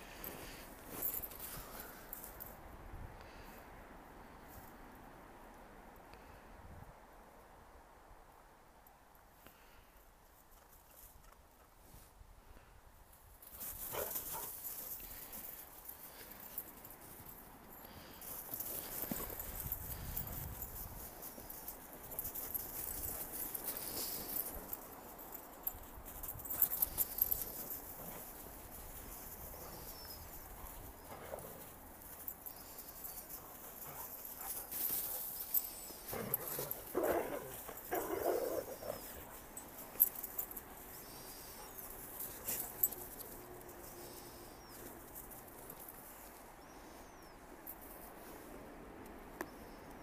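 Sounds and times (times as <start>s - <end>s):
dog paws crunching in snow: 0.0s - 2.5s, 13.4s - 47.0s.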